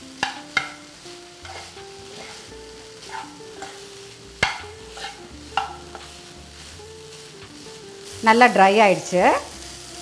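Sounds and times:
faint sizzle: 0.0s - 10.0s
ladle stirring and scraping pan: 0.2s - 8.2s.

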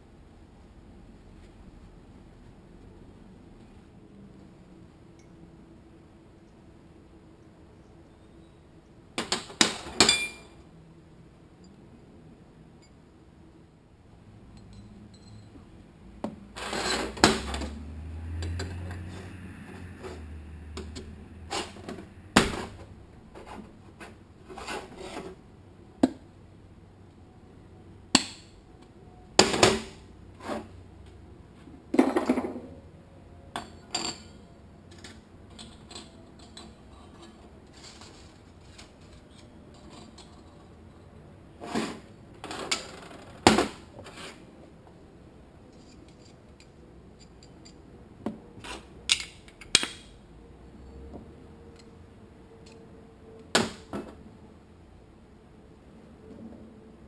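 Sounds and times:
metal parts clanking on workbench: 9.7s - 10.5s.

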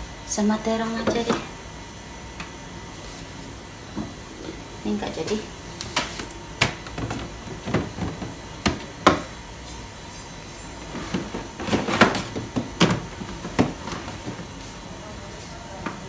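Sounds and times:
plastic containers clattering: 5.9s - 9.2s, 10.8s - 14.6s.

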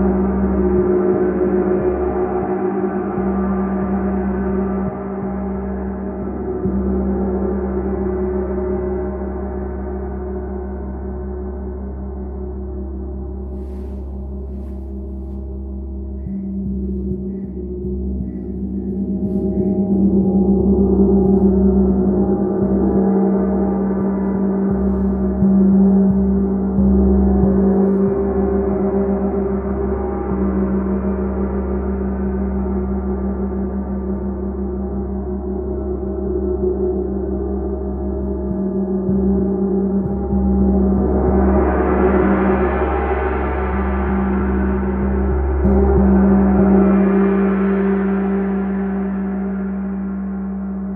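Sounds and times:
gong played with soft mallet: 0.0s - 50.9s
strong low hum: 10.6s - 50.9s.

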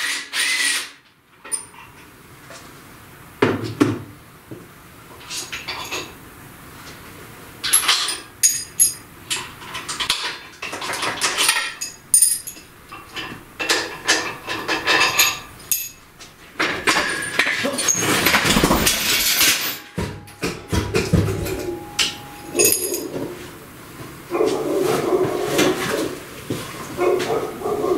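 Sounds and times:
metal tools clanking: 1.4s - 1.9s, 5.2s - 6.2s, 7.6s - 23.5s
metal rattling and scraping: 7.7s - 23.5s.

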